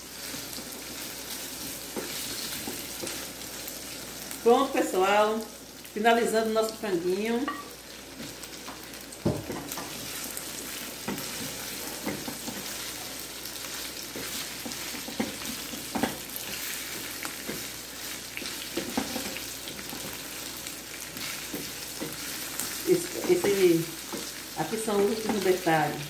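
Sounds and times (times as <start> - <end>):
food sizzling in a frying pan: 0.0 - 26.0
wooden spoon stirring: 9.4 - 25.6.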